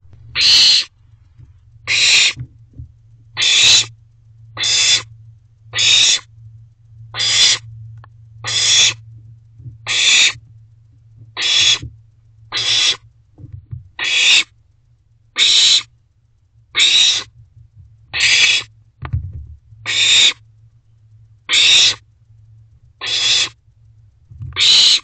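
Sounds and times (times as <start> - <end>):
low hum: 0.0 - 24.6
owlet begging hisses: 0.3 - 0.9, 1.9 - 2.4, 3.4 - 3.9, 4.6 - 5.1, 5.7 - 6.3, 7.2 - 7.6, 8.4 - 9.0, 9.9 - 10.4, 11.4 - 11.8, 12.5 - 13.0, 18.2 - 18.7, 19.9 - 20.4, 23.0 - 23.6, 24.6 - 25.0.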